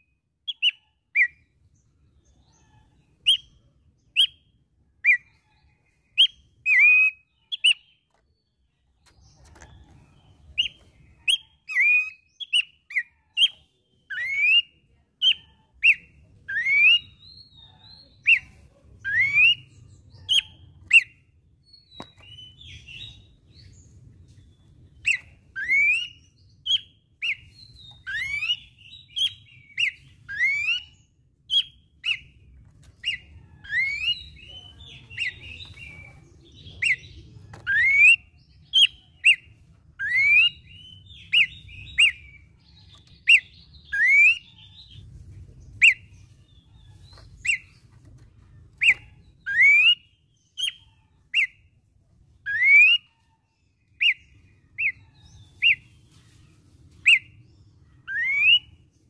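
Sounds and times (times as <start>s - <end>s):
bird whistling upward: 25.0s - 27.4s, 43.3s - 44.6s, 48.8s - 50.0s, 52.5s - 53.1s, 58.1s - 58.7s.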